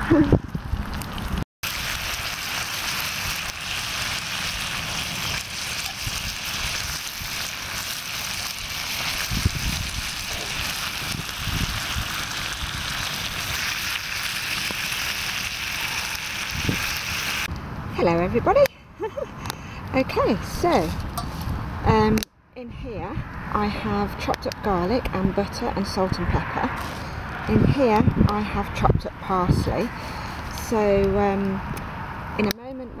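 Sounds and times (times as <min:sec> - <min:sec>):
bacon sizzling in a pan: 0:01.0 - 0:17.5.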